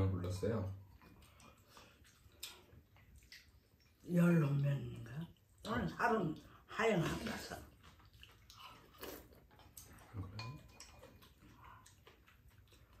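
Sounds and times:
chewing and slurping: 0.3s - 4.1s, 6.3s - 13.0s
utensils clinking on bowls: 9.8s - 11.4s.

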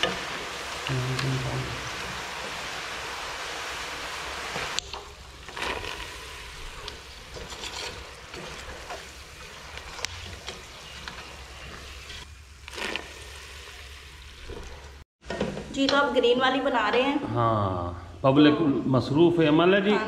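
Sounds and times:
food frying in hot oil: 0.0s - 15.0s
wire skimmer scraping pot: 4.5s - 13.2s.

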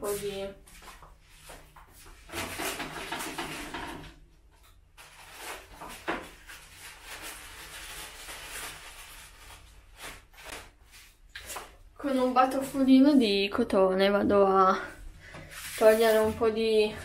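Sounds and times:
rustling of small things: 0.0s - 13.0s.

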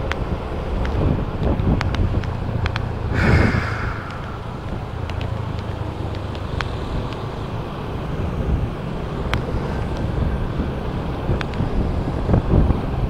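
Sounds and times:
wind buffeting microphone: 3.1s - 6.2s.

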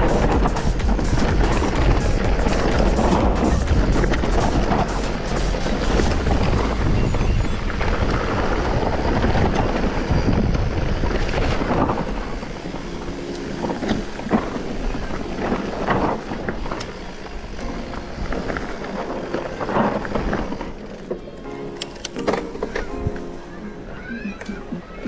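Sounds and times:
bike tyres rattling over rough ground: 0.0s - 24.1s
wind on microphone: 5.6s - 12.7s.

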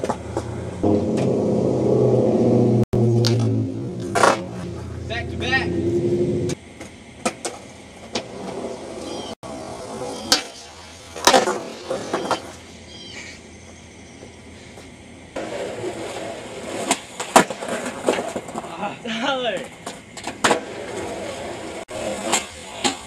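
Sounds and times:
skateboard clacks: 0.0s - 1.6s, 6.7s - 12.6s, 15.4s - 18.8s, 19.4s - 23.0s
skateboard rolling on concrete: 0.0s - 23.0s.

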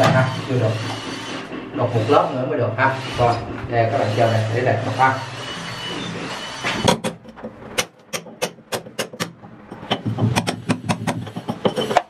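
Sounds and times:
hammer striking chisel into brick: 6.8s - 12.0s.

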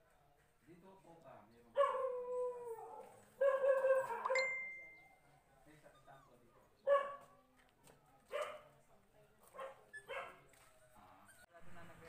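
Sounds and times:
dog barking: 1.8s - 2.2s, 3.0s - 4.4s, 6.8s - 7.4s, 8.3s - 8.7s, 9.5s - 10.4s
high ringing ding: 4.3s - 5.2s.

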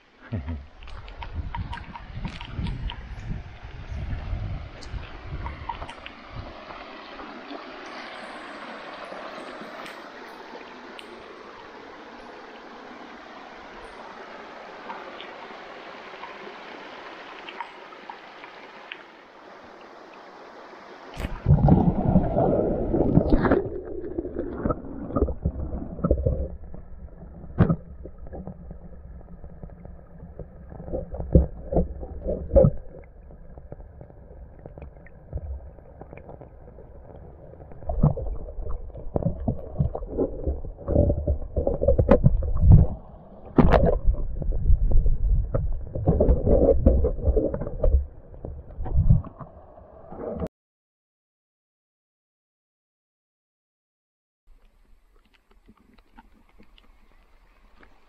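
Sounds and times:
stream running over stones: 0.0s - 50.4s, 54.5s - 58.0s
underwater rushing and gurgling: 0.0s - 50.5s
sharp underwater knocks: 37.9s - 49.5s.

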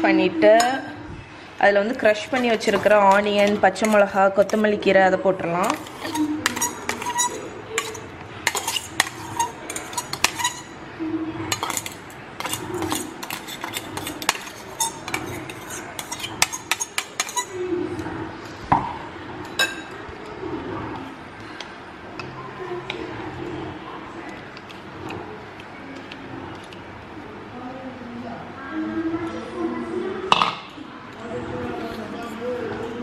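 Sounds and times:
fork clinking on a glass bowl: 5.6s - 10.8s, 11.5s - 17.6s.

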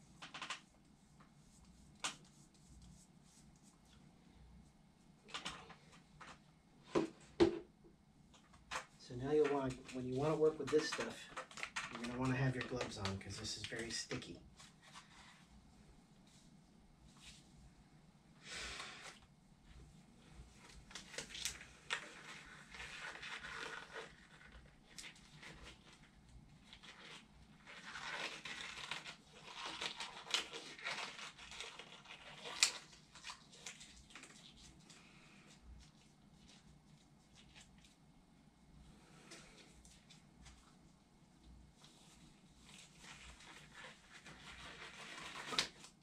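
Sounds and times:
rubber gloves rustling and crinkling: 0.0s - 7.4s, 8.3s - 18.0s, 18.8s - 46.0s.

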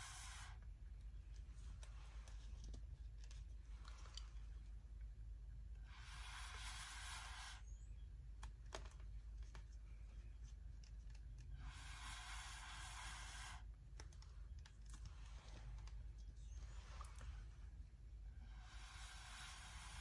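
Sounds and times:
air hissing through a tube: 0.0s - 0.7s, 5.8s - 7.9s, 11.5s - 13.7s, 18.2s - 20.0s
faint clicks: 13.6s - 17.6s.

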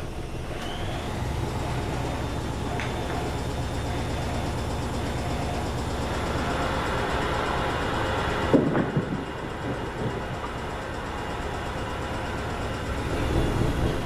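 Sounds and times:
washing machine humming: 0.0s - 14.0s
heavy thump: 8.5s - 10.2s
smaller knocks: 8.5s - 10.5s.

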